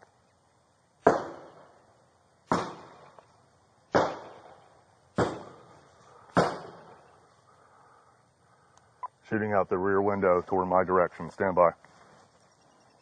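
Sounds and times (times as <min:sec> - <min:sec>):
gunshots with echo: 0:06.3 - 0:07.0.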